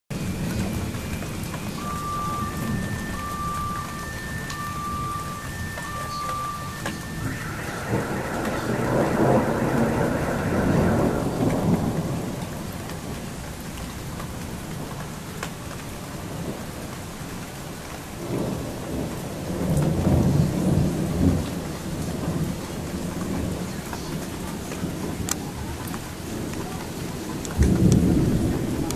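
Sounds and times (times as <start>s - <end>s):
steady rain: 0.1s - 28.9s
rolling thunder: 0.4s - 14.8s.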